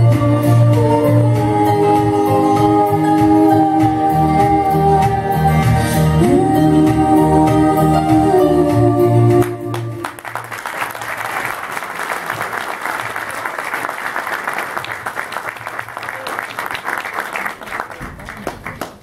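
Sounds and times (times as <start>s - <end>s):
audience applauding: 9.4s - 19.0s.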